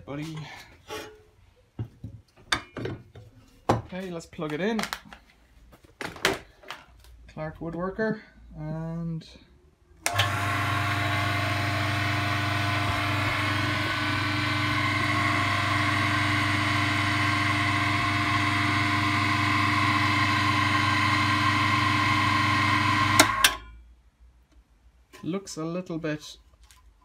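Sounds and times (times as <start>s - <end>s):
lathe motor humming and whining: 10.1s - 23.4s.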